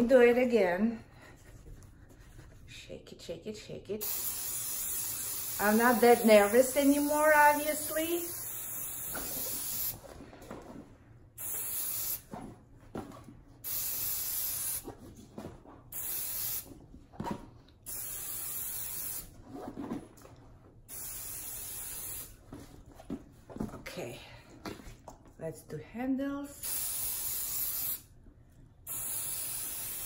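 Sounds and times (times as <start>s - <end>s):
aerosol can spraying: 4.0s - 10.0s, 11.4s - 12.3s, 13.6s - 14.9s, 15.9s - 16.7s, 17.9s - 19.3s, 20.9s - 22.3s, 26.6s - 28.1s, 28.9s - 30.0s.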